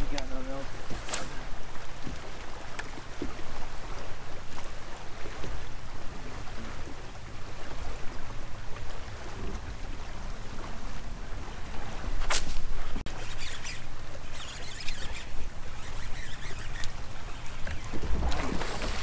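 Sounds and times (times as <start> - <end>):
water lapping at boat hull: 0.0 - 19.0
wind rumbling on microphone: 0.0 - 19.0
faint ticks: 2.0 - 3.4, 13.3 - 17.9.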